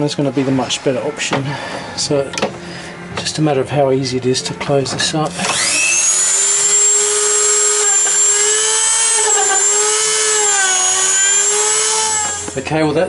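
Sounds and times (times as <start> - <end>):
rotary tool grinding: 5.3 - 12.6.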